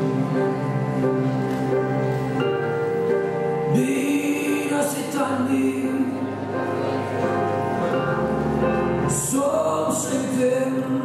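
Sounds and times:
held chords: 0.0 - 11.0
person singing: 3.5 - 8.2, 9.0 - 11.0.

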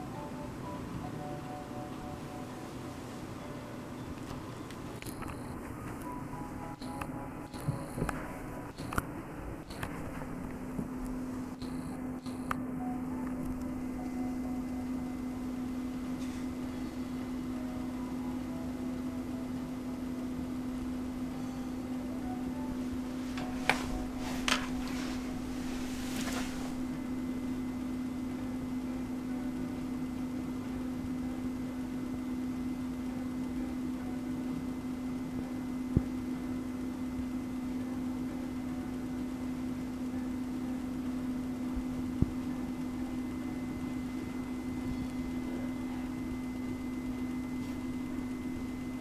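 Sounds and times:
low room hum: 0.0 - 49.0.

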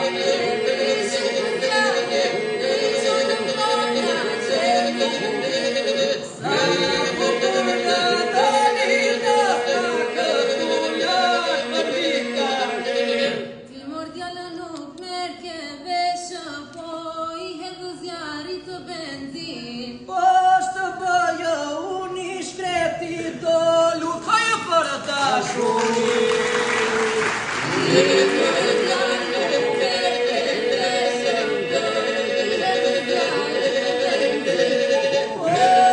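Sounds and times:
unaccompanied polyphonic group singing: 0.0 - 14.2, 19.3 - 35.9
held vocal drone: 25.6 - 35.9.

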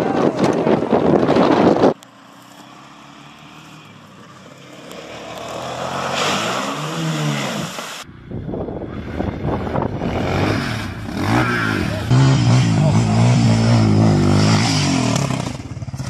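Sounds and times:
quad bike engine revving: 2.6 - 16.0
water splashing: 2.7 - 8.1.

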